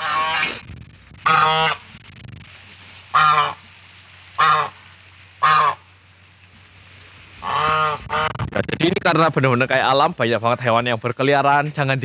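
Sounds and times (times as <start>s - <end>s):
goose honking: 0.0s - 0.6s, 1.2s - 1.9s, 3.1s - 3.7s, 4.3s - 5.9s, 7.4s - 8.4s.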